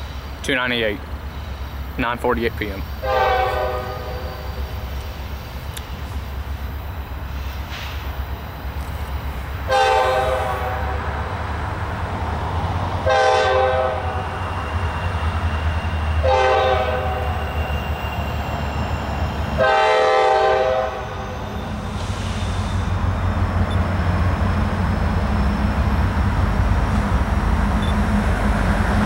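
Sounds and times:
low rumble of train: 0.0s - 29.0s
locomotive air horn blasts: 3.0s - 4.4s, 9.7s - 11.2s, 13.0s - 14.4s, 16.2s - 17.5s, 19.6s - 21.3s.

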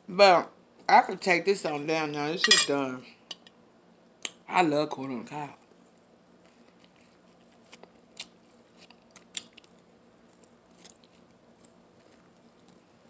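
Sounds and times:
chewing corn on the cob: 6.8s - 13.0s.

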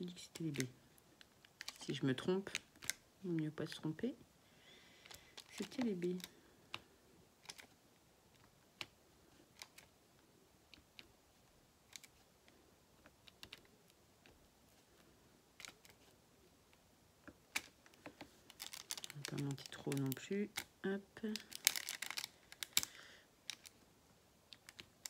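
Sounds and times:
small clicks and taps of pen: 11.9s - 14.4s, 24.5s - 25.0s.

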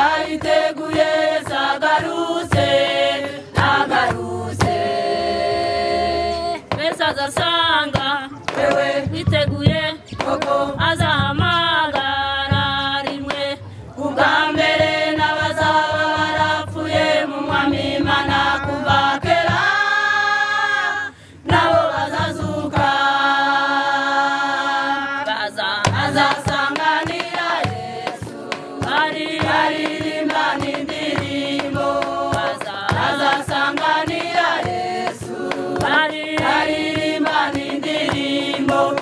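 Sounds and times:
hand claps: 0.0s - 4.8s, 6.6s - 8.9s, 25.9s - 39.0s
women's choir singing a hymn: 0.0s - 39.0s.

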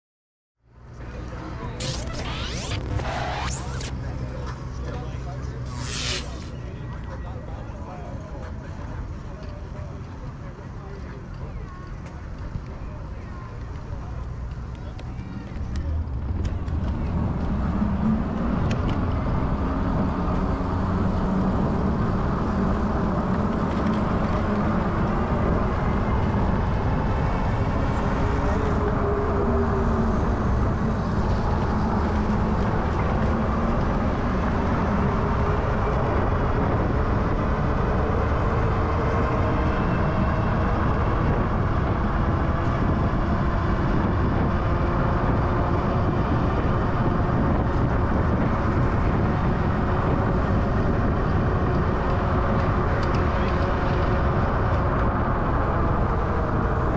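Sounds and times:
wind and road rush: 11.8s - 56.9s.

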